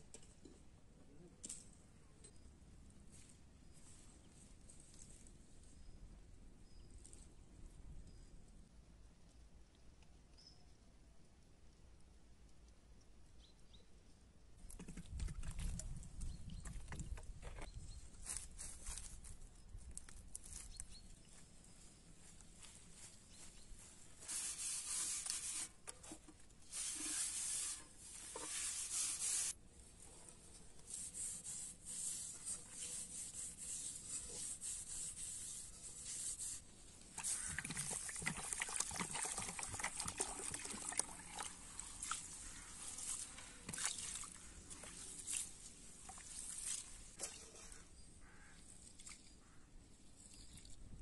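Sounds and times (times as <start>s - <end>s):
hands scraping in dry leaves: 22.8s - 25.7s, 26.6s - 29.6s.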